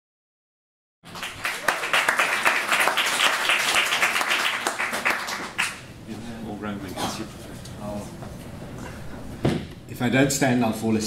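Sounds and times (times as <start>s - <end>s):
audience applauding: 1.0s - 5.9s.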